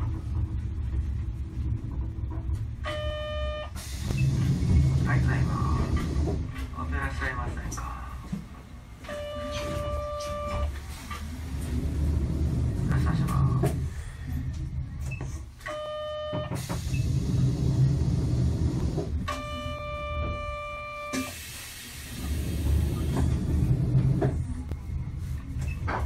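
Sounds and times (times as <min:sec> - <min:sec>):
streetcar rumble: 0:00.0 - 0:15.6, 0:16.5 - 0:26.0
buzzer tone: 0:09.1 - 0:10.7
air hiss: 0:21.2 - 0:23.3.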